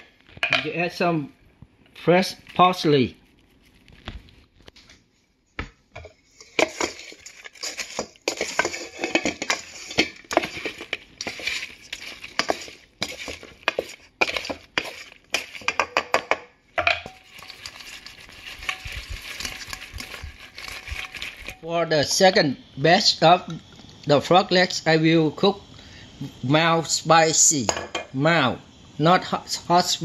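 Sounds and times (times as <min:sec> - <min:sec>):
steady sizzling hiss: 0:00.0 - 0:30.0
food stirred in metal pot: 0:02.2 - 0:04.3, 0:06.0 - 0:22.4
clinks and scrapes on metal: 0:06.3 - 0:16.0.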